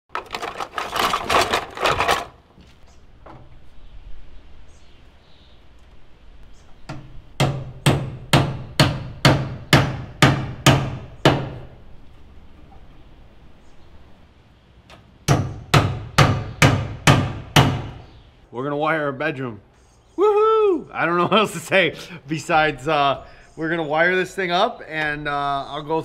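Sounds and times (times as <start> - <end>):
plastic boxes clattering: 0.1 - 2.4.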